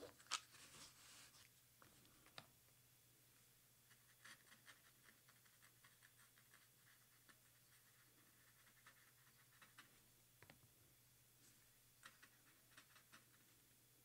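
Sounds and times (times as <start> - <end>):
low steady hum: 0.0 - 14.0
brush pen scratching on card: 3.9 - 10.0, 12.0 - 13.5.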